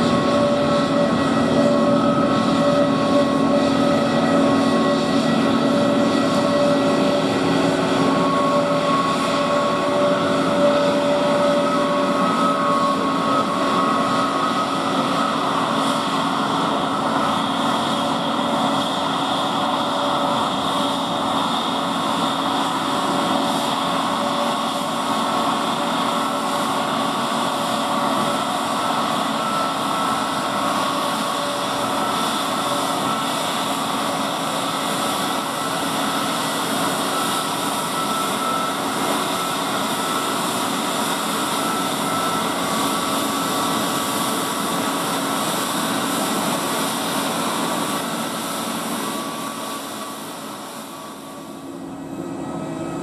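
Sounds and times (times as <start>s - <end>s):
jet engine whine: 0.0s - 53.0s.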